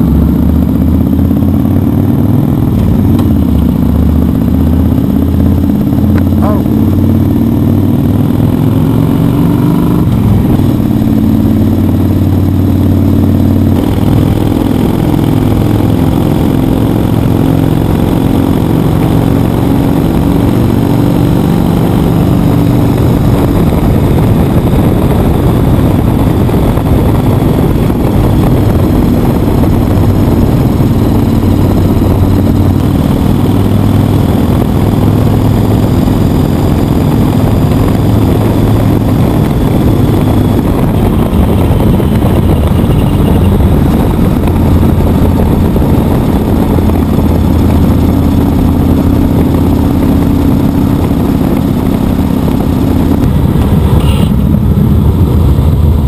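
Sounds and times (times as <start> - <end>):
motorcycle engine running: 0.0 - 56.0
wind rushing on microphone: 0.0 - 56.0.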